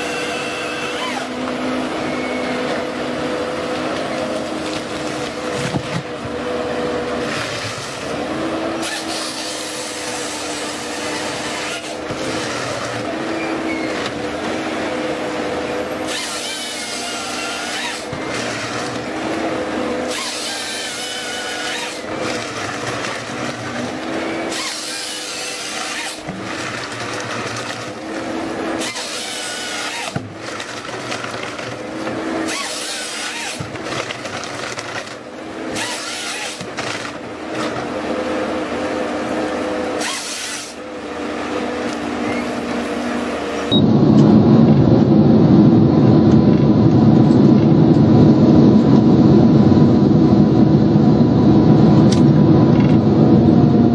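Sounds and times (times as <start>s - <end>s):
wavering squeal: 0.0s - 3.0s, 13.2s - 14.1s
harvester head sawing trunks: 0.0s - 43.7s
harvester engine and hydraulics hum: 0.0s - 53.9s.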